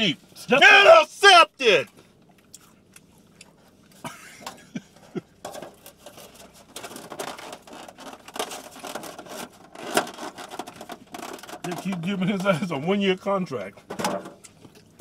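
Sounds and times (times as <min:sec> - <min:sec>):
food packaging crinkling: 0:05.6 - 0:12.1.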